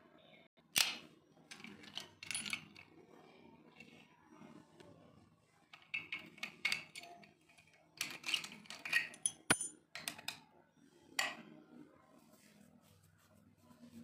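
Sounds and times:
padlocks and keys clinking: 0:08.2 - 0:09.7.

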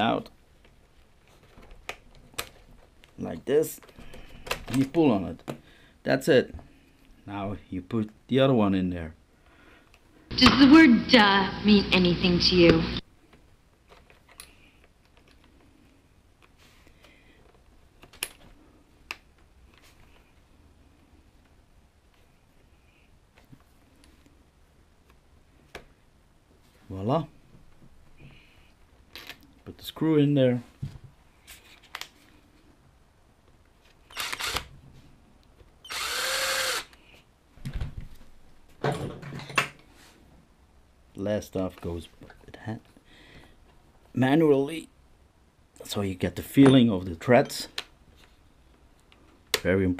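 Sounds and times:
cordless drill motor spinning: 0:34.1 - 0:34.7, 0:35.9 - 0:37.0.

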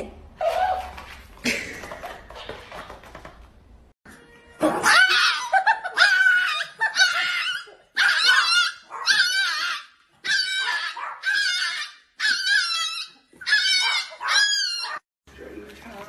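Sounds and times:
puppy barking and crying: 0:04.5 - 0:15.0.

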